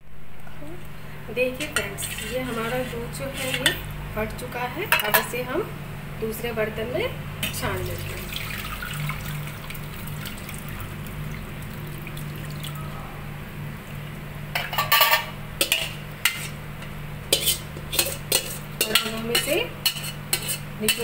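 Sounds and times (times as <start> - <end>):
metal pots and utensils clinking: 1.6 - 3.8, 4.9 - 5.4, 14.5 - 21.0
liquid running through strainer: 7.8 - 13.1.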